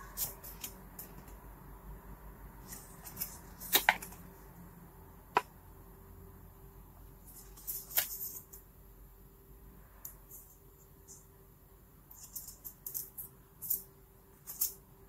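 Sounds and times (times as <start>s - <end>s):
paper rustling: 2.6s - 4.3s, 7.2s - 8.6s.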